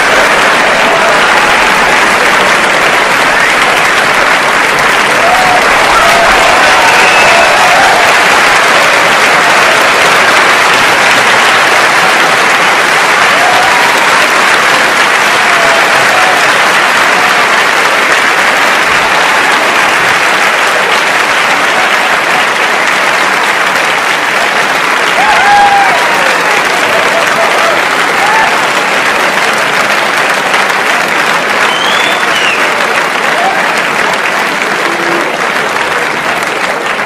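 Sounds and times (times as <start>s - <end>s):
audience applauding: 0.0s - 37.0s
voices whooping: 5.2s - 8.3s.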